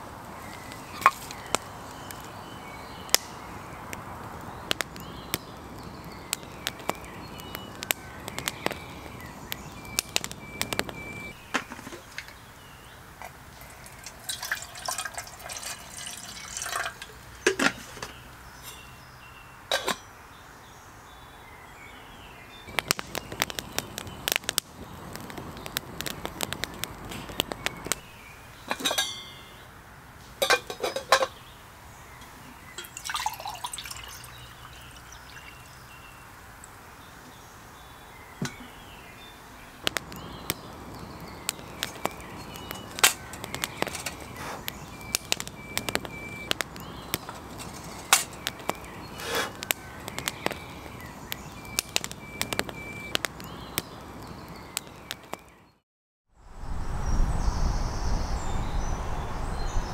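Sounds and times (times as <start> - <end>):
campfire crackling and popping: 0.0 - 18.8, 22.6 - 29.5, 32.2 - 36.8, 39.6 - 55.8
water pouring into kettle: 13.6 - 17.2, 32.8 - 35.7
metal kettle lid clinks: 19.7 - 20.0, 28.7 - 29.4.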